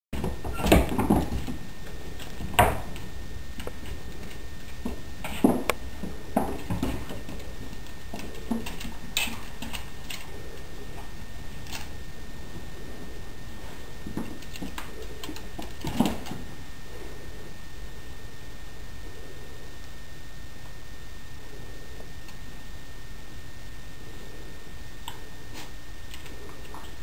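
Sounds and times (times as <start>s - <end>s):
animals scuffling on wooden floor: 0.2s - 16.6s.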